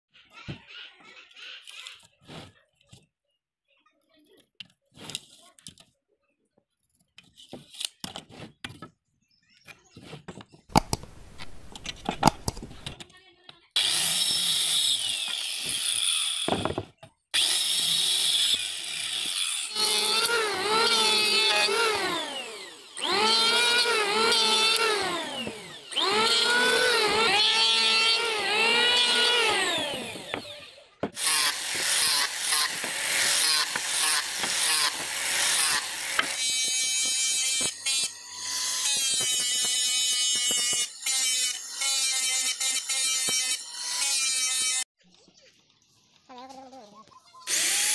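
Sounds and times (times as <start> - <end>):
electric planer cutting wood: 17.4 - 44.8, 47.5 - 47.9.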